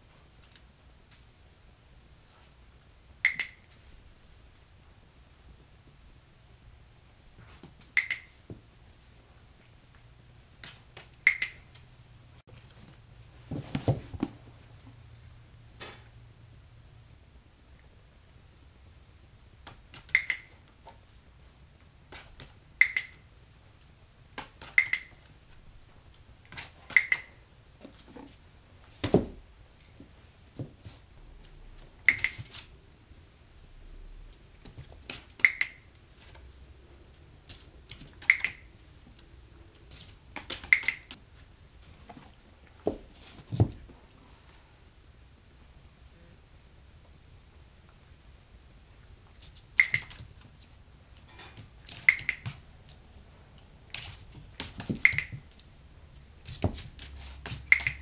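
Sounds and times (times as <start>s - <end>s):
dog-training clicker clicking: 3.2s - 3.6s, 8.0s - 8.3s, 11.2s - 11.6s, 20.0s - 20.5s, 22.8s - 23.2s, 24.6s - 25.1s, 26.9s - 27.3s, 32.1s - 32.4s, 35.4s - 35.8s, 38.2s - 38.7s, 40.5s - 41.2s, 49.8s - 50.2s, 52.0s - 52.5s, 55.0s - 55.4s, 57.7s - 58.0s.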